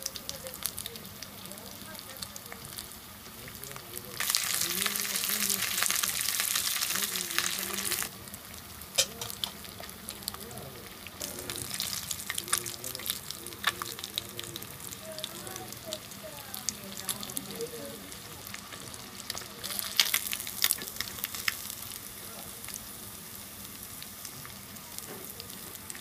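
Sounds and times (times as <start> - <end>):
fish sizzling in oil: 0.0 - 26.0.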